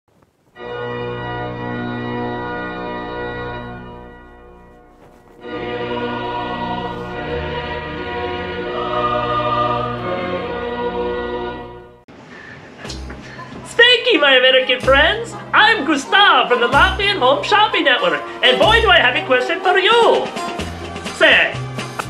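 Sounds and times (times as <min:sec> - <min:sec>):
choir singing held chords: 0:05.4 - 0:12.1, 0:14.6 - 0:21.8.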